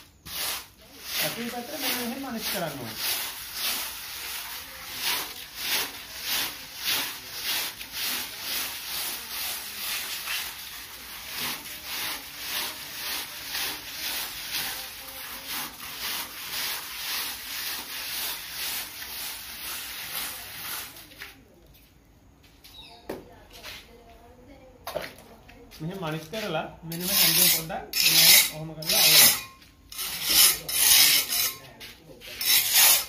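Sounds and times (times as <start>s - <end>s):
sponge float rubbing wet plaster: 0.0s - 21.4s.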